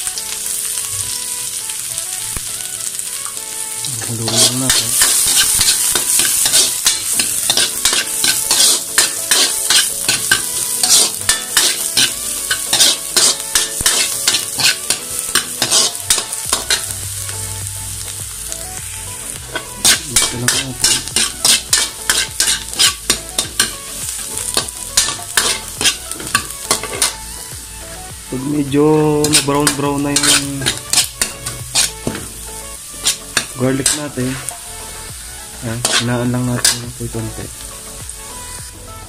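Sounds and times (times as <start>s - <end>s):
food sizzling in hot oil: 0.0s - 39.0s
metal ladle scraping a wok: 4.0s - 17.0s, 19.5s - 27.2s, 29.2s - 35.1s, 35.7s - 36.9s.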